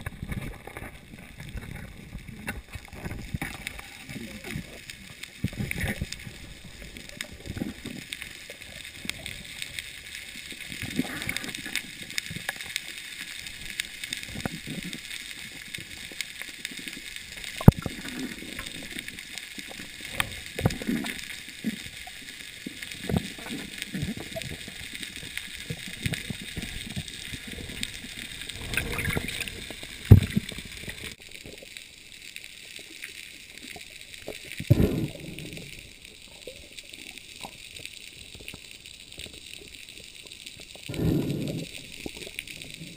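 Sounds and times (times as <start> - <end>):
muffled underwater gurgling: 0.0 - 12.6, 16.6 - 31.2, 33.6 - 37.6, 40.7 - 42.9
steady hiss: 0.0 - 42.9.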